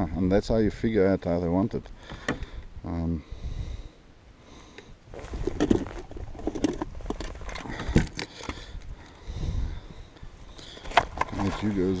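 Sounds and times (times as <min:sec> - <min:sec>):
gear handled in plastic kayak: 0:05.2 - 0:08.9, 0:10.6 - 0:12.0.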